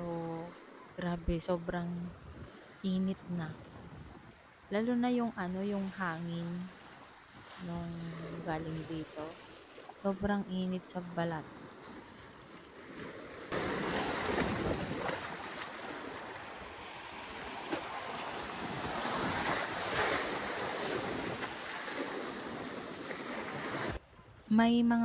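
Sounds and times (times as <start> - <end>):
wind buffeting microphone: 3.4 - 4.5, 13.6 - 15.5
sea surf washing on beach: 5.7 - 24.0.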